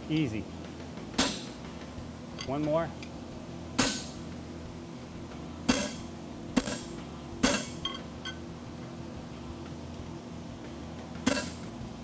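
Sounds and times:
sledgehammer striking hot steel: 1.2 - 1.6, 3.8 - 4.2, 5.7 - 8.0.

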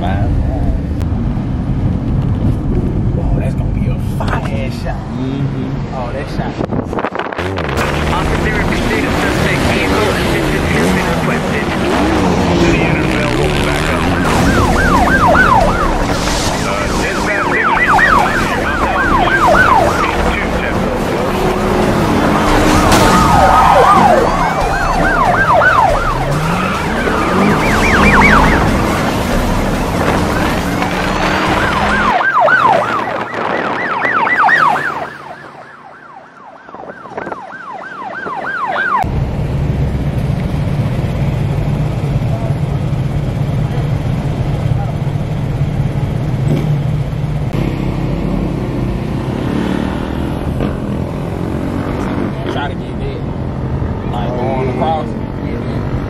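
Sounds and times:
engines and traffic rumble: 0.0 - 56.0
siren yelping: 13.0 - 29.0, 30.0 - 39.1.

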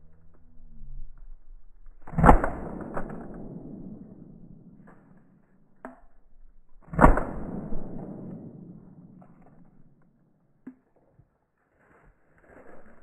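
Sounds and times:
shotgun shots with echo: 2.1 - 4.8, 6.9 - 9.4.

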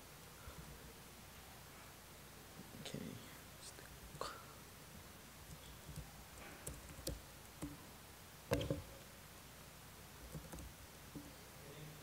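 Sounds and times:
laptop keystrokes and clicks: 5.5 - 7.8, 10.3 - 10.7.

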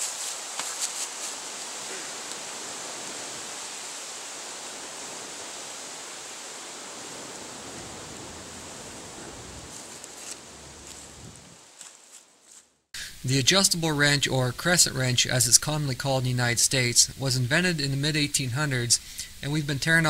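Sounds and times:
steady rushing noise: 0.0 - 11.7.

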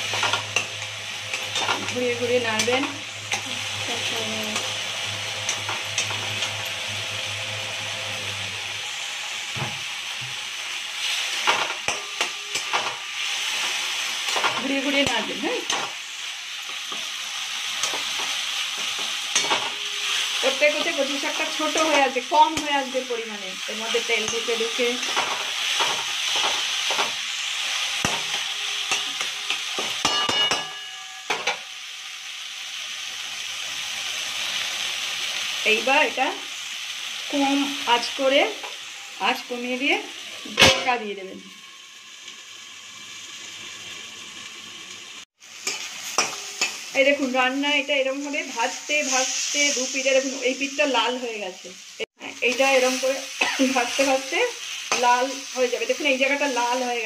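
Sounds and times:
metal spatula scraping a pan: 0.0 - 8.5, 11.0 - 17.1, 17.7 - 22.7, 23.9 - 31.6
food sizzling in a pan: 0.0 - 57.0.

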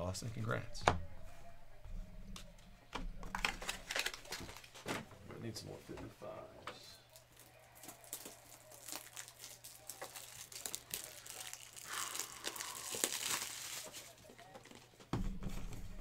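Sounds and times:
wrapper tearing and crinkling: 3.4 - 4.8, 7.1 - 14.9.

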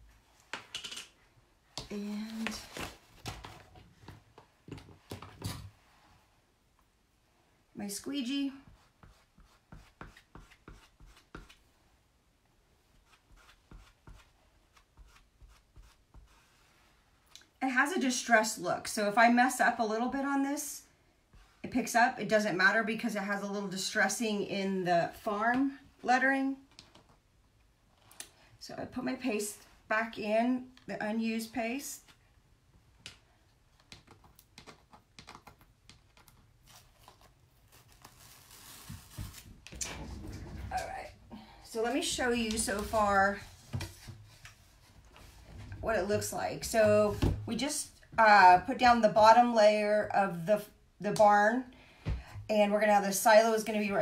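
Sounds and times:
squeegee scraping on screen: 41.8 - 47.2.

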